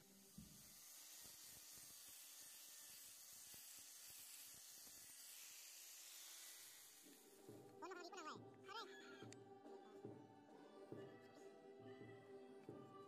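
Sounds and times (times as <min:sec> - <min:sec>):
angle grinder sanding wood: 0:00.0 - 0:08.0.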